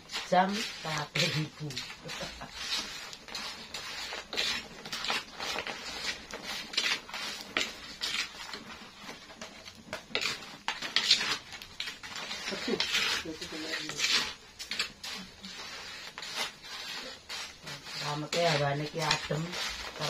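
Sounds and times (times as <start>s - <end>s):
spatula scraping a wok: 0.0s - 20.0s.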